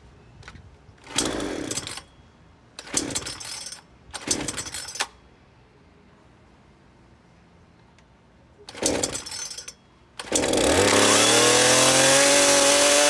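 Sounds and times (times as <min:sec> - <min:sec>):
chainsaw recoil starter pulls: 0:01.0 - 0:02.1, 0:02.8 - 0:05.1, 0:08.7 - 0:13.0
engine turning over: 0:02.8 - 0:03.6, 0:10.2 - 0:13.0.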